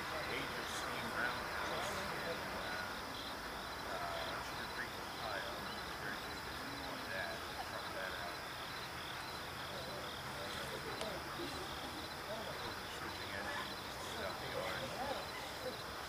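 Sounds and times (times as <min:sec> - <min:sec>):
faint distant voices: 0:00.0 - 0:16.0
insects chirping: 0:00.0 - 0:16.0.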